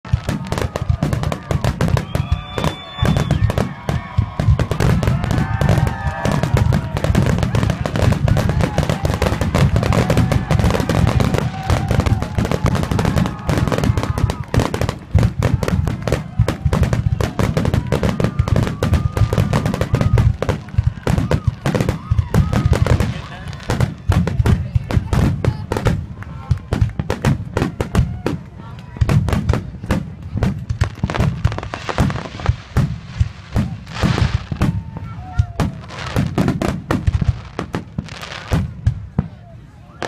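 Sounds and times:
fireworks bangs and crackling: 0:00.0 - 0:40.0
thin whistling fireworks: 0:00.1 - 0:28.4, 0:29.4 - 0:40.0
faint whistle-like tone: 0:02.0 - 0:03.5.

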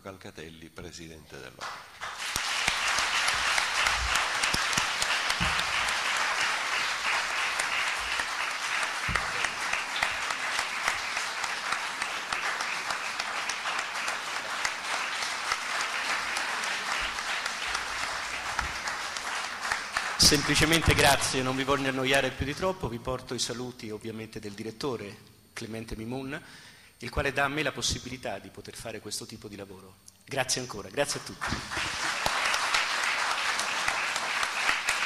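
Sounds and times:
audience applauding: 0:01.6 - 0:22.3, 0:31.2 - 0:35.0.

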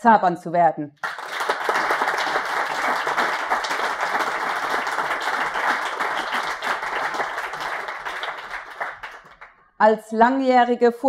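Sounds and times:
audience applauding: 0:01.0 - 0:09.6.

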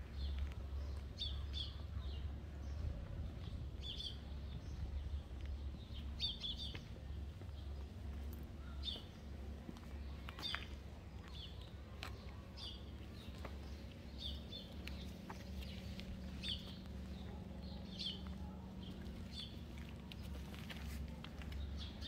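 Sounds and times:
low steady rumble: 0:00.0 - 0:22.0
small birds chirping: 0:00.1 - 0:22.0.

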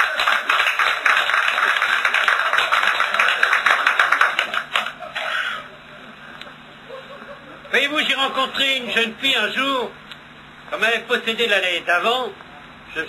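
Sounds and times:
audience applause: 0:00.0 - 0:05.7.

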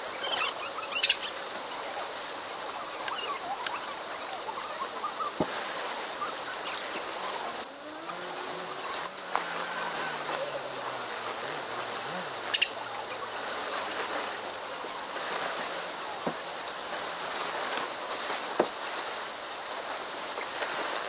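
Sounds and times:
outdoor ambient hiss: 0:00.0 - 0:21.0.

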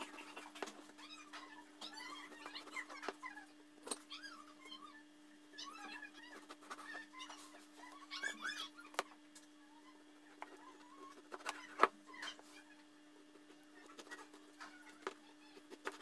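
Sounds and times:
animal calls: 0:00.0 - 0:09.0.

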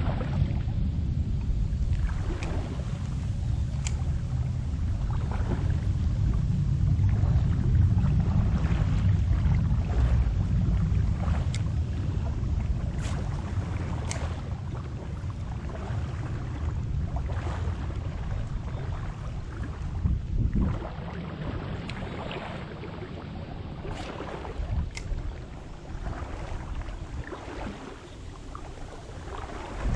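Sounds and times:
wind buffeting microphone: 0:00.0 - 0:29.9
faint sharp clicks: 0:01.4 - 0:03.2, 0:03.8 - 0:04.1, 0:14.0 - 0:14.4, 0:24.9 - 0:25.3.

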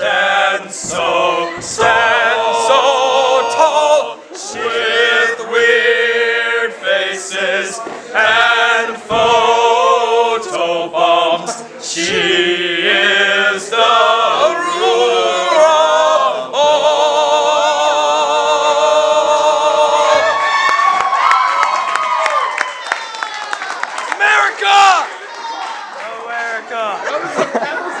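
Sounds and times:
boys singing in chorus: 0:00.0 - 0:20.4.

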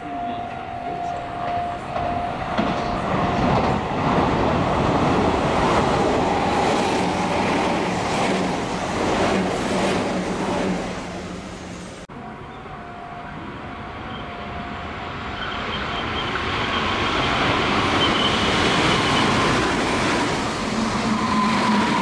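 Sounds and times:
steady high tone: 0:00.0 - 0:02.6, 0:12.1 - 0:19.8
train rushing past: 0:00.0 - 0:12.1, 0:13.5 - 0:22.0.

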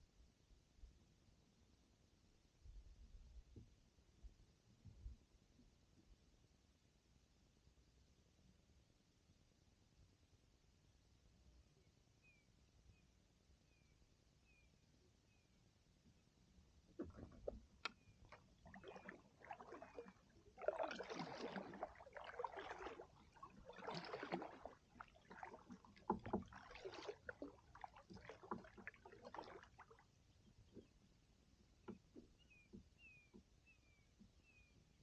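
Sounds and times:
water dripping: 0:17.0 - 0:29.6
kayak paddle splashing: 0:17.0 - 0:30.9.

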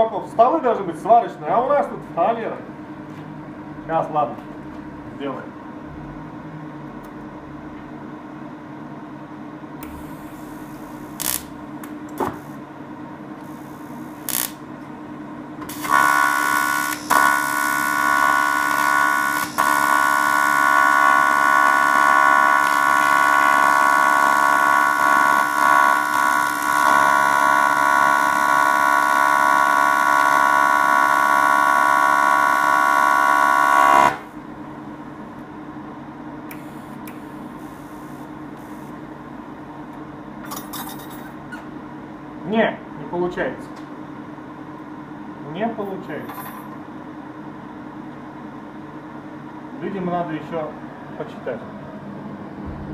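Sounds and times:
welding arc crackles: 0:09.8 - 0:11.6, 0:13.4 - 0:14.7, 0:15.7 - 0:34.2
welder high-pitched buzz: 0:09.8 - 0:12.6, 0:13.4 - 0:14.7, 0:15.6 - 0:34.4, 0:36.5 - 0:39.0.

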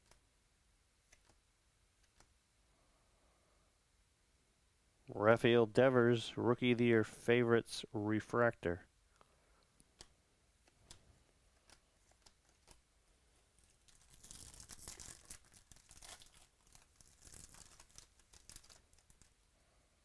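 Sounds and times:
foil wrapper tearing and crinkling: 0:13.6 - 0:19.4.

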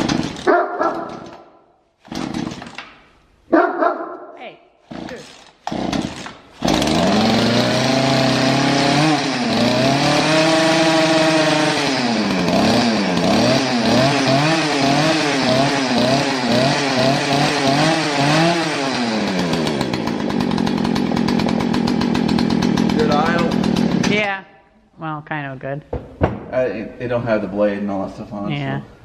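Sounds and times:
two-stroke chainsaw engine revving: 0:00.0 - 0:00.5, 0:02.1 - 0:02.8, 0:04.9 - 0:24.3.

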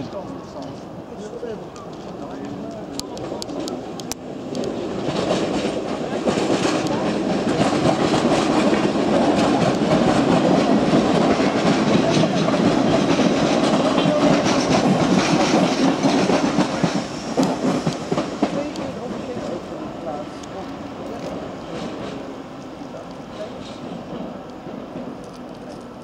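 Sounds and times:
train rumbling past: 0:00.0 - 0:26.0
wheels clacking over rails: 0:01.8 - 0:22.3.

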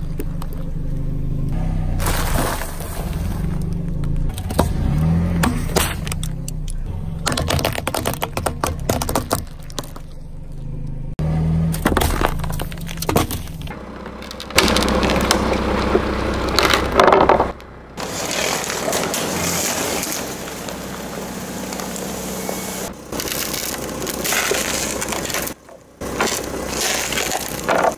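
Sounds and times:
low engine hum: 0:00.0 - 0:27.9
tyre crushing objects: 0:07.2 - 0:10.2, 0:11.7 - 0:13.7, 0:14.3 - 0:27.9.

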